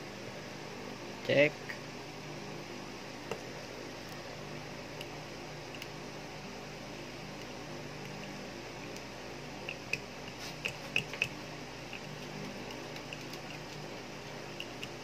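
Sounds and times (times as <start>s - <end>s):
steady background hum: 0.0s - 15.0s.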